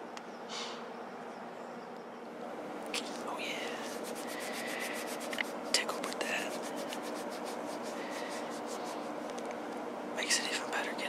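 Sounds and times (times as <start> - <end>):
steady low hum: 0.0 - 11.0
soft rubbing close to microphone: 3.0 - 9.3.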